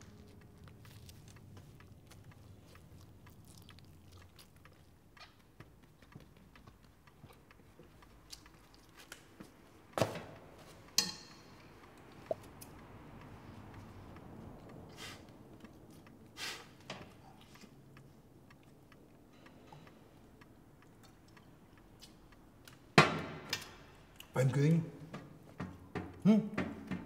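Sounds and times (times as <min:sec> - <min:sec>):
sharp knocks: 0:25.1 - 0:27.0.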